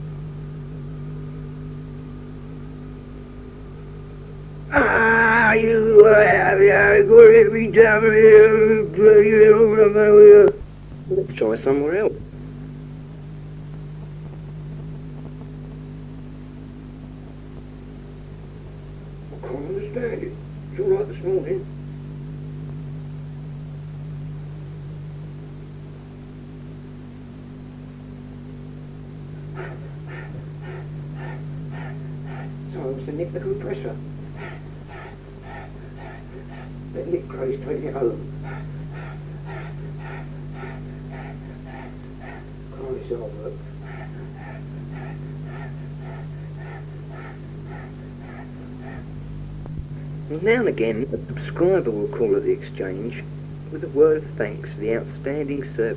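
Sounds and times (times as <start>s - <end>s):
electrical hum with hiss: 0.0s - 55.9s
rhythmic panting: 28.7s - 55.9s.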